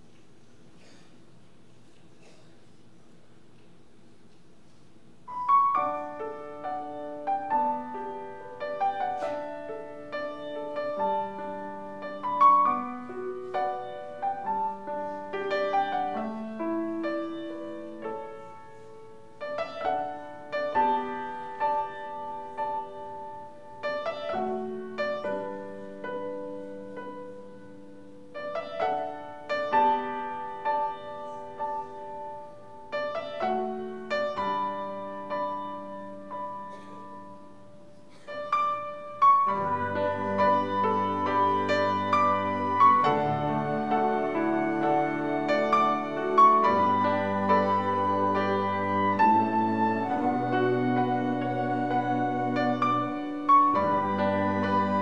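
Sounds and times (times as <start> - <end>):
gentle classical piano piece: 0.0 - 55.0.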